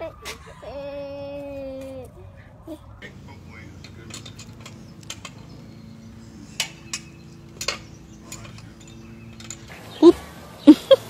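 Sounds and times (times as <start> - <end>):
steady low hum: 0.0 - 11.0
collar tag clinking: 3.0 - 11.0.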